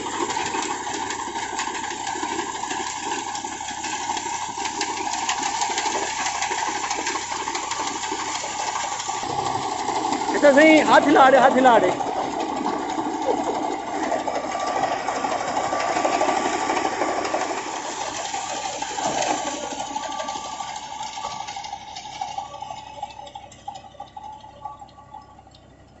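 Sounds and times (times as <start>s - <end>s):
tractor diesel engine under load: 0.0s - 26.0s
reaper mechanical chatter: 8.7s - 16.6s.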